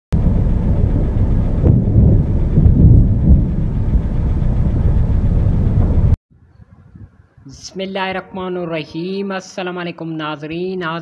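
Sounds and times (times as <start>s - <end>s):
thunder rumbling: 0.1s - 6.2s.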